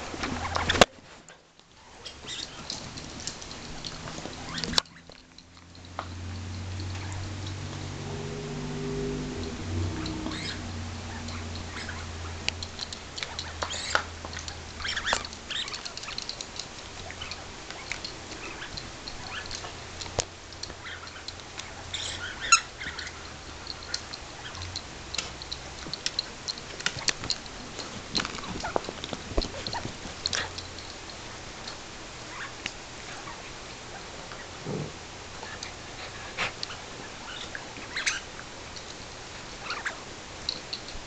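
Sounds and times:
dogs scuffling: 0:02.0 - 0:07.8, 0:09.1 - 0:33.2
low hum: 0:03.1 - 0:18.0
toy squeaks: 0:13.4 - 0:14.0, 0:14.8 - 0:16.4.

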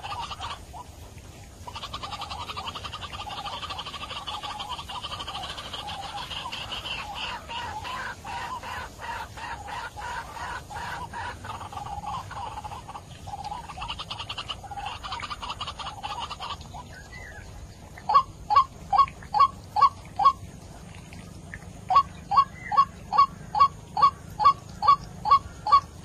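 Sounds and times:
waterhen calling: 0:00.0 - 0:26.0.

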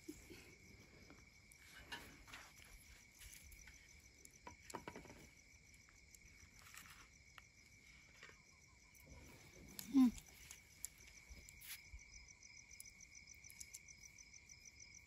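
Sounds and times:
crickets chirping: 0:00.0 - 0:15.0
small objects clicking and rustling: 0:06.1 - 0:07.2, 0:09.0 - 0:11.8.

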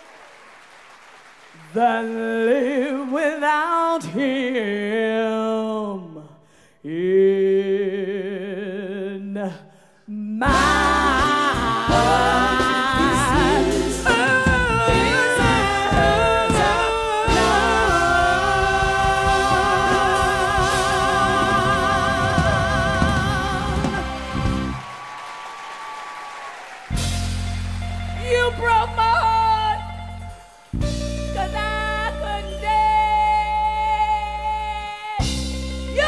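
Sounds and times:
woman singing with vibrato: 0:01.6 - 0:24.5, 0:28.2 - 0:29.9, 0:31.3 - 0:36.0
full band playing: 0:10.5 - 0:36.0.

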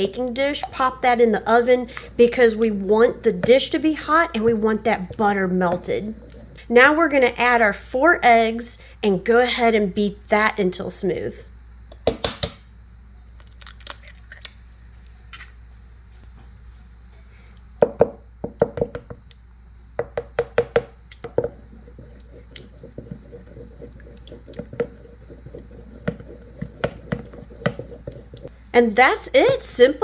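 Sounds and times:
wooden spoon beating batter: 0:02.6 - 0:06.6, 0:20.0 - 0:28.5.

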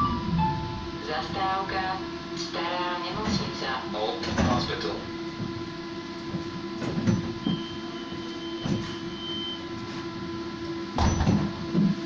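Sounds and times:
tram equipment hum: 0:00.0 - 0:12.0
doors shutting with thump: 0:04.2 - 0:04.8, 0:06.3 - 0:09.1, 0:11.0 - 0:12.0
high warning beep: 0:07.4 - 0:09.7.

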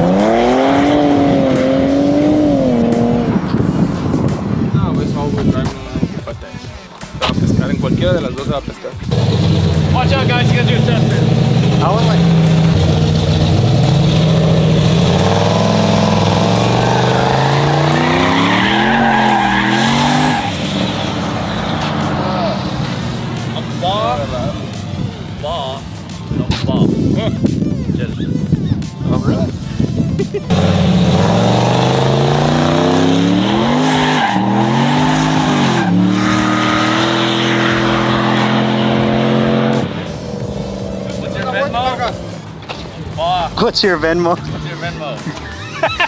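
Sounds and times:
truck engine revving high: 0:00.0 - 0:04.6, 0:09.1 - 0:25.1, 0:30.5 - 0:42.6
tyres squealing: 0:15.1 - 0:22.8, 0:31.6 - 0:39.8.

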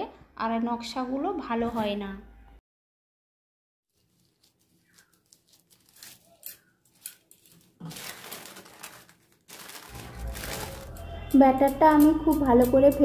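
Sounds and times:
plastic bag crinkling: 0:03.9 - 0:12.0.

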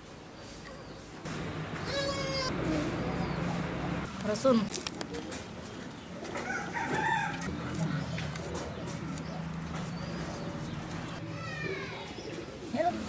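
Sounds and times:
chicken calling: 0:01.8 - 0:03.4.

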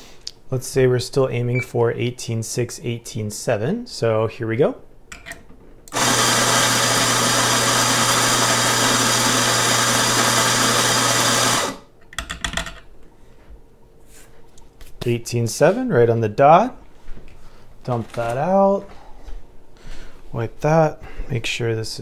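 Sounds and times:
coffee grinder whirring: 0:05.9 - 0:11.9.

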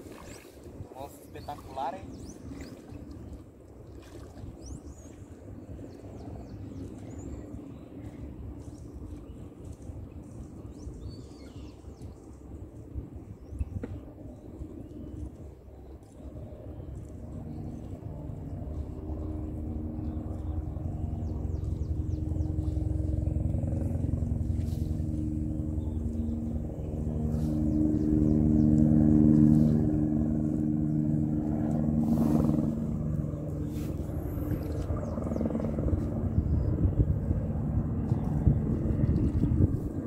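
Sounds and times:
motorboat engine running: 0:16.0 - 0:40.0.

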